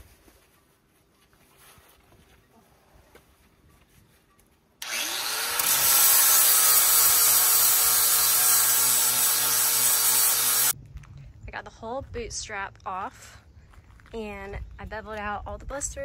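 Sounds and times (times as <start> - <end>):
electric grinder sanding: 4.8 - 10.8.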